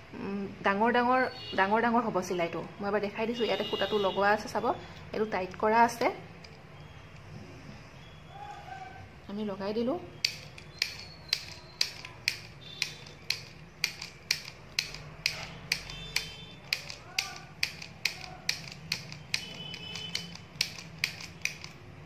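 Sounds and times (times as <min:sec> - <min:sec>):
mini sewing machine clicking: 0:10.2 - 0:22.0.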